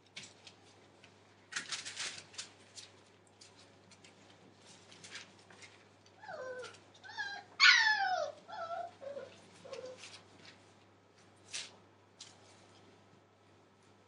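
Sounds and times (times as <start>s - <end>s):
puppy whining and yelping: 6.2s - 10.1s.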